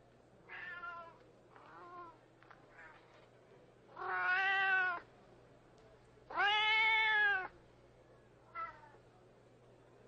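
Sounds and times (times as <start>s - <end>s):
cats meowing: 0.5s - 2.2s, 4.0s - 5.0s, 6.3s - 7.5s.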